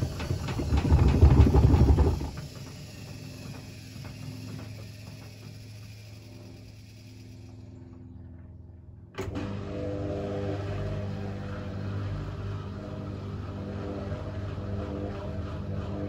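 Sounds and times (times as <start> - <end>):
wet load tumbling in drum: 0.0 - 5.4
washing machine drum humming: 0.0 - 6.8.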